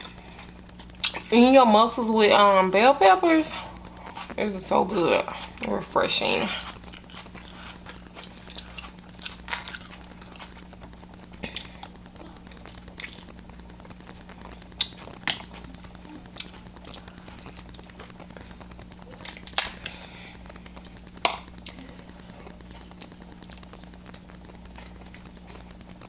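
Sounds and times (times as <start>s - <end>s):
faint low hum: 0.0s - 26.0s
chewing: 6.4s - 13.3s, 14.1s - 25.8s
crab shell cracking: 14.5s - 20.0s, 20.6s - 21.9s.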